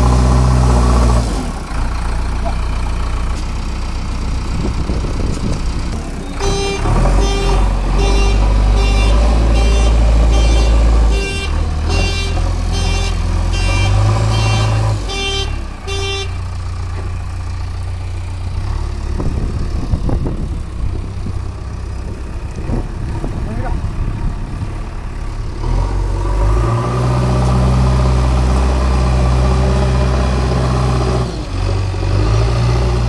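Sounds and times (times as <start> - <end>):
diesel engine working hard: 0.0 - 33.0
reversing alarm beeping: 6.4 - 16.4.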